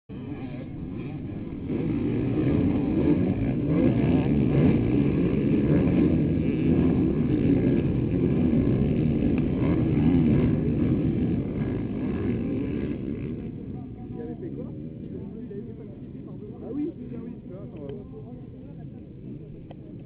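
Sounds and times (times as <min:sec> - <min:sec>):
motocross bikes revving: 0:00.1 - 0:15.4.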